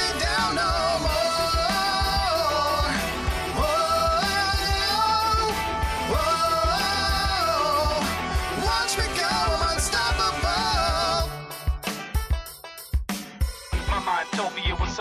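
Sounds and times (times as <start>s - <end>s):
song with sliding vocals over beat: 0.0s - 12.0s.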